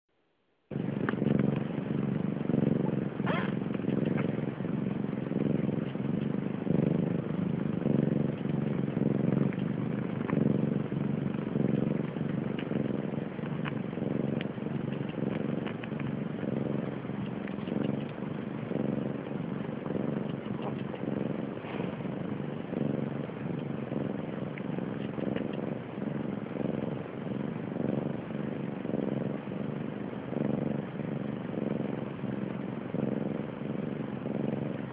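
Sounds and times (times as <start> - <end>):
cat purring loudly: 0.7 - 34.9
kittens suckling clicks: 13.4 - 16.1.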